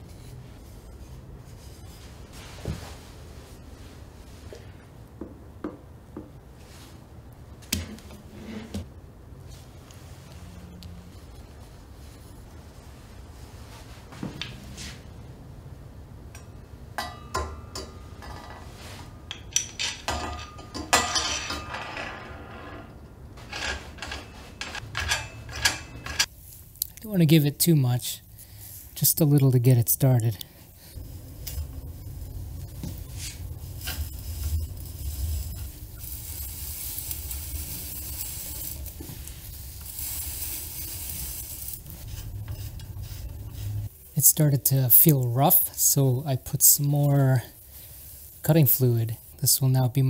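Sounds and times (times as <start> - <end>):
metal scraping: 17.2 - 26.3, 30.9 - 44.5
metal tool clinking: 19.3 - 22.0, 23.4 - 26.3.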